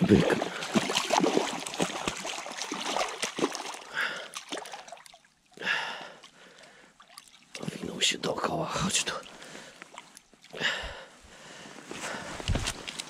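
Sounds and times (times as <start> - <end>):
fish splashing in water: 0.1 - 5.5, 7.0 - 7.6.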